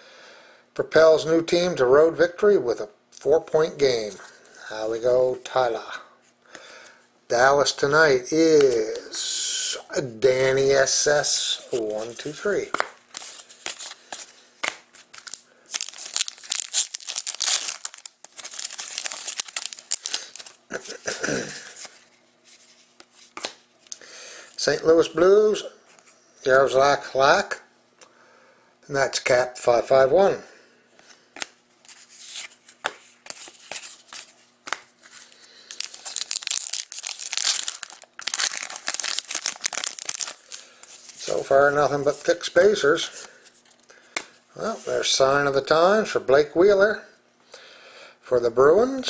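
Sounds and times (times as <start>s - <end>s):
foil wrapper crinkling and tearing: 10.9s - 22.0s, 31.4s - 41.5s
card handling clicks and rustles: 11.6s - 22.1s, 31.0s - 41.5s
cards clicking and sliding: 23.0s - 23.6s, 31.0s - 36.6s.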